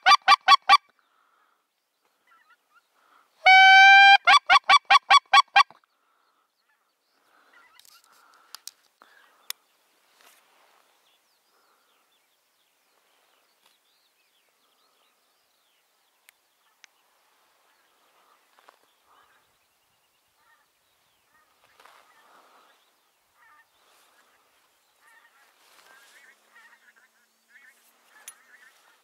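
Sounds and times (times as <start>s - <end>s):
wild geese honking: 0.0s - 9.4s, 20.4s - 29.0s.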